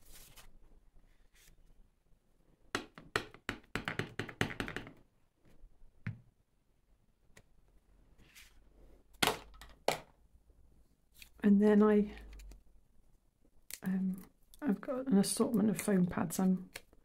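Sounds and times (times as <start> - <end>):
taps and knocks on tabletop: 2.8 - 5.0.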